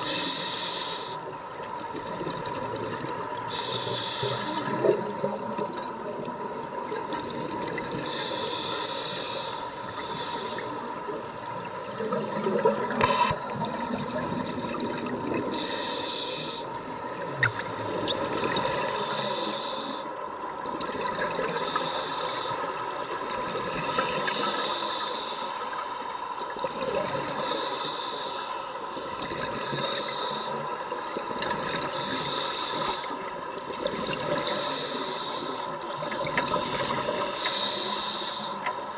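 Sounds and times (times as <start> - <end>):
hissing breaths through regulator: 0.0 - 1.4, 3.4 - 5.8, 8.0 - 11.2, 12.0 - 14.0, 15.5 - 17.2, 18.8 - 20.2, 21.5 - 23.0, 23.8 - 26.3, 27.3 - 38.9
exhaled bubbles underwater: 1.5 - 3.7, 11.2 - 15.7, 17.2 - 19.2, 20.6 - 21.8, 29.1 - 37.3.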